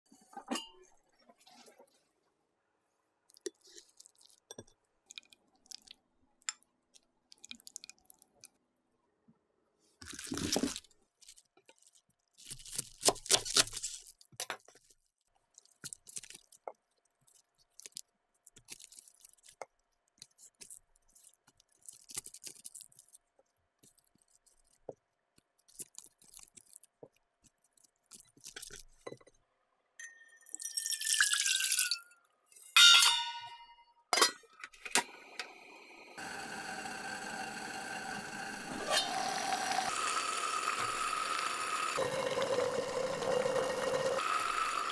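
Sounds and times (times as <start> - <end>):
water pouring into pot: 30.4 - 32.1, 36.2 - 44.9
electric hob hum: 34.9 - 44.9.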